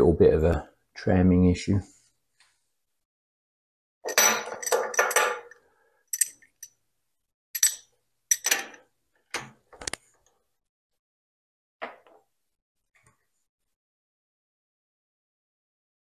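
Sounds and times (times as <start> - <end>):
metal tools clinking on workbench: 4.1 - 6.8, 7.6 - 8.8.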